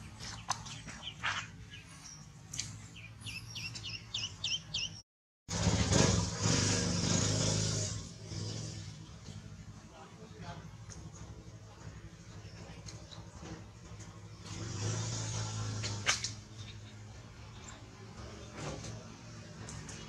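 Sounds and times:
duckling peeping: 0:03.0 - 0:05.0
splashing in a metal pot: 0:12.8 - 0:17.9.

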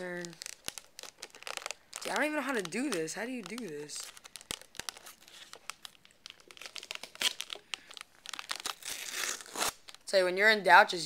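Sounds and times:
plastic lid crinkling and clicking: 0:00.0 - 0:08.7.

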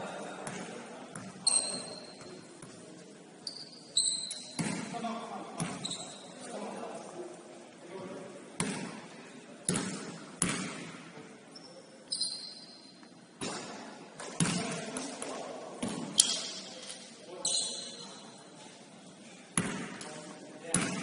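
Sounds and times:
sneaker squeaks: 0:00.4 - 0:02.8, 0:03.4 - 0:05.0, 0:05.6 - 0:06.5, 0:11.5 - 0:13.7, 0:15.8 - 0:18.4
basketball bouncing on court: 0:04.3 - 0:05.0, 0:09.7 - 0:10.9, 0:13.4 - 0:15.0, 0:19.6 - 0:19.9.

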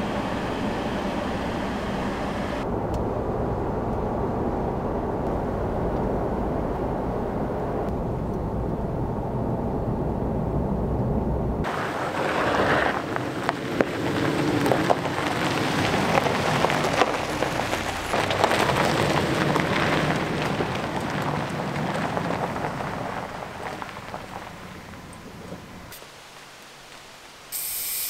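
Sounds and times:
low road rumble: 0:00.0 - 0:27.5
tyres crunching over gravel: 0:11.7 - 0:27.2.

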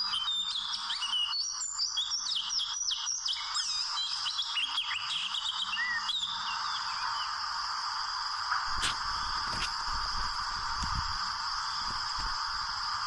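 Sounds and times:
bird singing whistled notes: 0:00.0 - 0:07.4
steady high hiss: 0:00.0 - 0:13.0.

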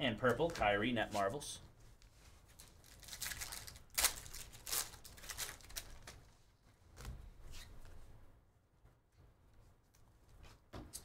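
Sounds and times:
foil wrapper tearing and crinkling: 0:02.6 - 0:06.2.

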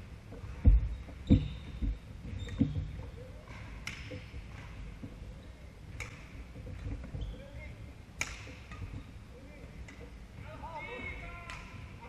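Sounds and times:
shoe squeaks: 0:00.8 - 0:03.5, 0:07.1 - 0:07.7.

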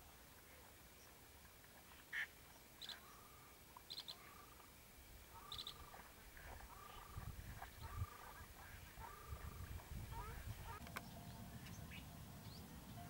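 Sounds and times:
short high duck calls: 0:02.0 - 0:04.6, 0:05.3 - 0:10.8.

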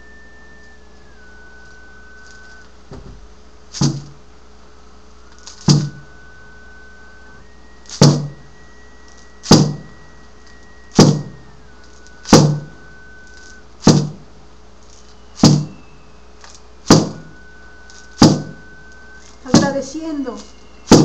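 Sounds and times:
frame drum beats: 0:05.5 - 0:06.1, 0:08.0 - 0:08.4, 0:09.4 - 0:10.0, 0:11.0 - 0:11.4, 0:12.3 - 0:12.8, 0:13.8 - 0:14.3, 0:16.9 - 0:17.4, 0:18.2 - 0:18.6, 0:19.2 - 0:19.9.

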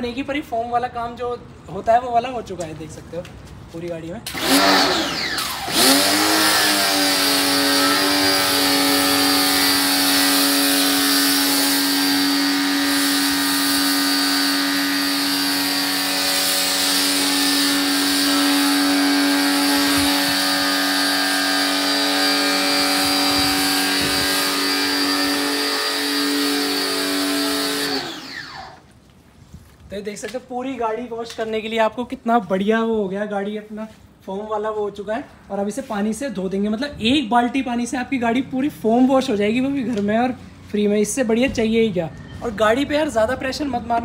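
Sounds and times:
pressure washer motor whine: 0:04.3 - 0:28.9.

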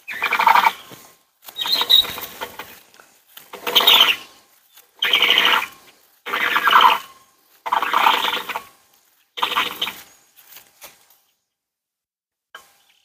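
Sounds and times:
rope squeaking over pulley: 0:01.6 - 0:02.5, 0:03.6 - 0:04.2.

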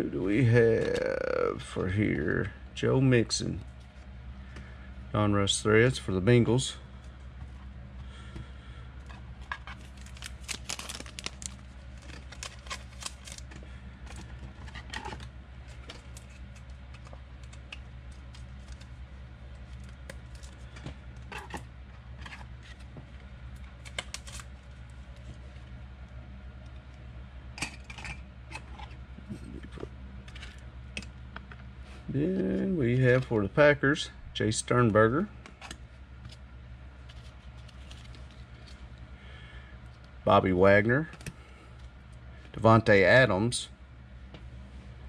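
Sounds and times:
steady low hum: 0:00.0 - 0:45.0
cards clicking and rustling: 0:09.4 - 0:19.0, 0:23.8 - 0:24.5, 0:37.0 - 0:38.8.

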